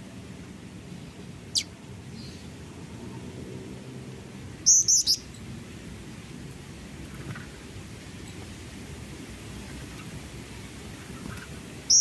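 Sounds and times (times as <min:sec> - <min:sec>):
bird calling: 0:01.5 - 0:02.5, 0:04.6 - 0:05.3, 0:11.0 - 0:12.0.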